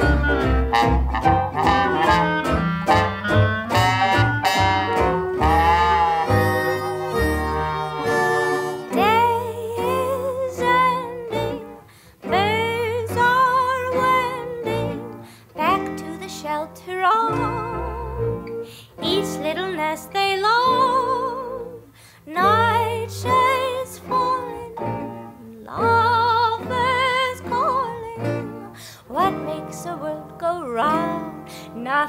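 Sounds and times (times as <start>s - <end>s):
plucked guitar: 0.0s - 21.8s, 22.4s - 32.0s
woman singing with vibrato: 5.5s - 32.0s.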